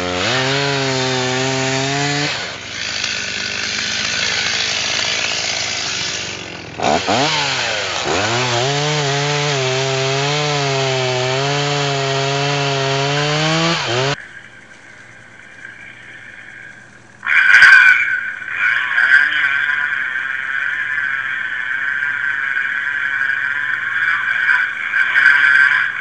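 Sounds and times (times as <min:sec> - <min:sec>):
chainsaw cutting wood: 0:00.0 - 0:14.2
faint low hum: 0:14.2 - 0:26.0.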